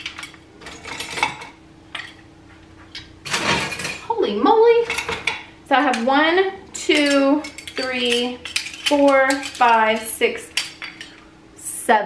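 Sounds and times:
metal tongs clattering and scraping: 0.0 - 2.2, 2.9 - 4.1, 4.8 - 6.1, 6.8 - 11.2.

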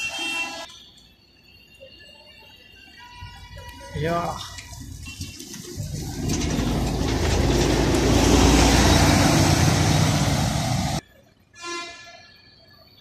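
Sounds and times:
bus driving past: 4.8 - 11.0.

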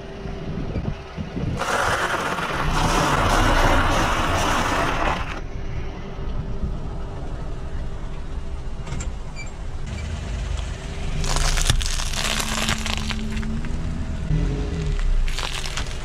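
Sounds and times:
dry noodles crunching under tyre: 1.6 - 5.4, 10.6 - 16.0
loud crackling: 1.6 - 5.4, 11.2 - 13.8, 14.8 - 16.0.

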